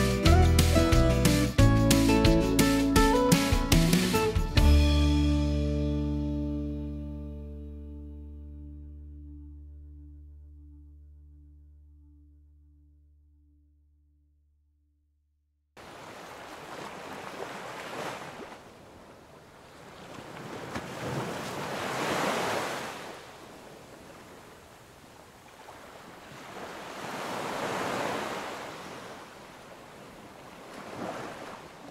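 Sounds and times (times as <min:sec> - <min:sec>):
waves breaking on sandy beach: 0:15.8 - 0:31.9.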